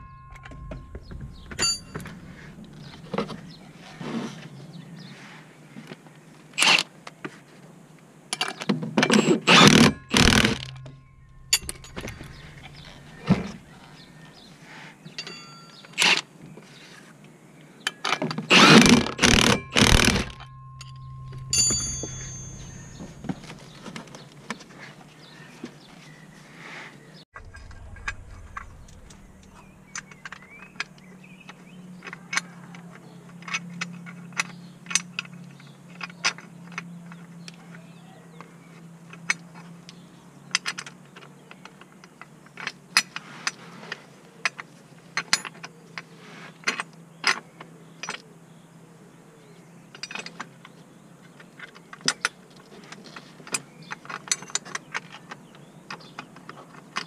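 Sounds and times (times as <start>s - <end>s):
metallic clinks of hand tools: 0.0s - 2.5s, 15.2s - 16.2s, 18.7s - 24.0s
faint low steady hum: 0.0s - 4.0s, 9.6s - 14.7s, 27.4s - 31.5s.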